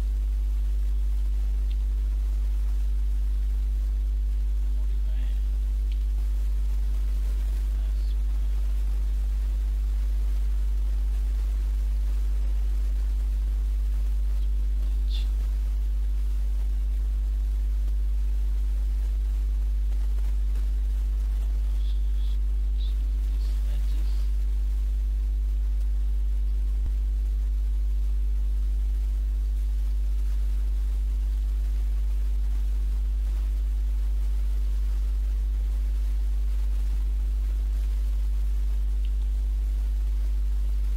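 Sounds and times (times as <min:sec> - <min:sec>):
electrical mains hum: 0:00.0 - 0:40.9
faint high chirps: 0:04.6 - 0:17.8, 0:20.2 - 0:26.8.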